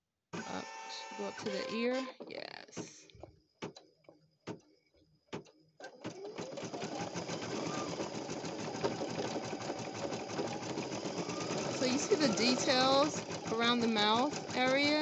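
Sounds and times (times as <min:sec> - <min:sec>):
embroidery machine needle clatter: 0:05.4 - 0:15.0.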